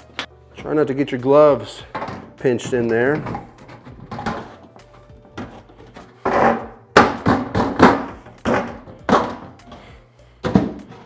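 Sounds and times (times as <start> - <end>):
sheet metal clanking and knocking: 1.8 - 9.6.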